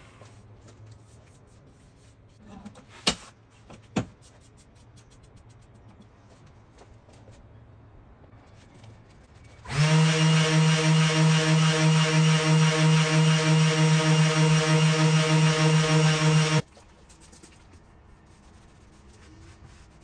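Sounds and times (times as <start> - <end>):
electric sander on wood: 9.7 - 16.6.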